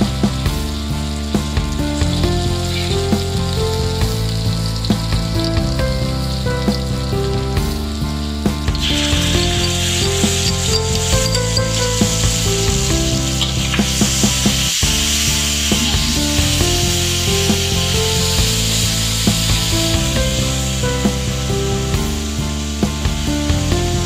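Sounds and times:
background music: 0.0 - 24.0
onions sizzling in a wok: 0.0 - 24.0
metal spatula scraping a pan: 8.8 - 12.4.

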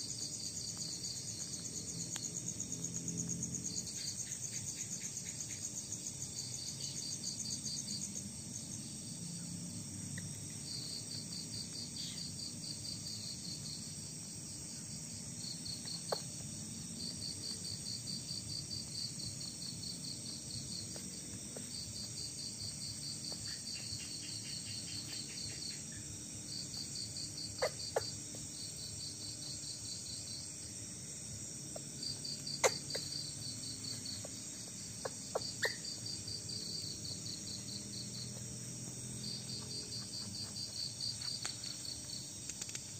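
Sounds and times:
crickets chirping: 0.0 - 42.9
high insect hum: 0.0 - 42.9.

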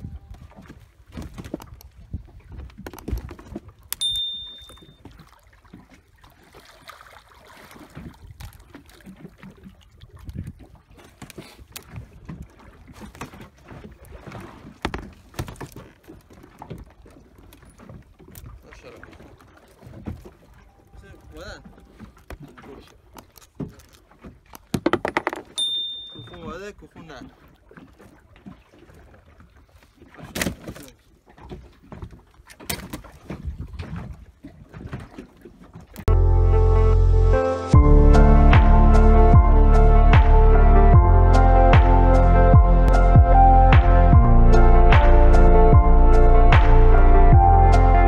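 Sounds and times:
knocks and clatters on boat deck: 0.0 - 6.0, 10.4 - 20.6, 21.4 - 27.2
wind and water rumble: 0.0 - 48.0
knocks on a boat: 14.8 - 15.7, 24.7 - 25.6.

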